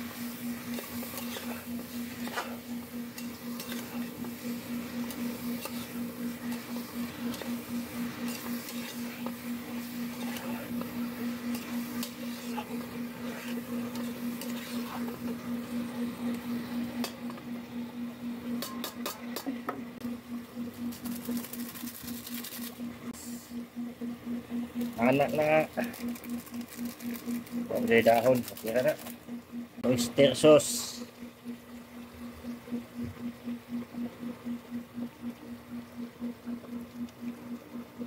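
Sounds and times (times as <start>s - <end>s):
steady low hum: 0.0s - 38.0s
metal spoon scraping pot: 11.4s - 15.1s.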